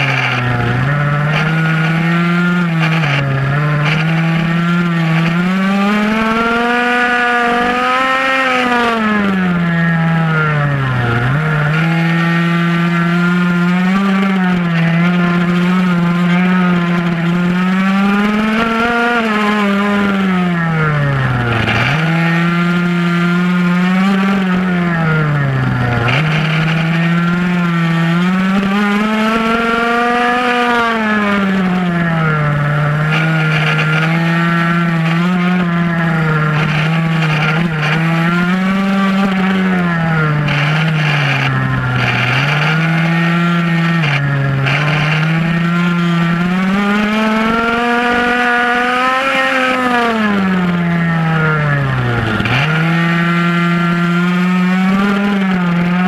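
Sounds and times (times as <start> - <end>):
small two-stroke engine revving: 0.0 - 56.0.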